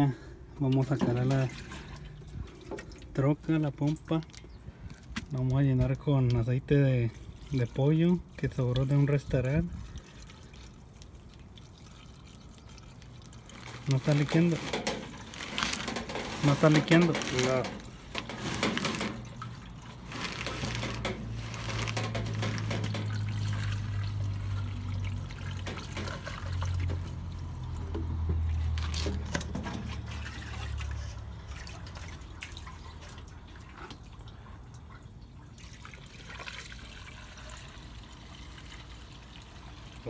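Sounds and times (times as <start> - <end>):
oil pouring into plastic funnel: 7.1 - 33.3.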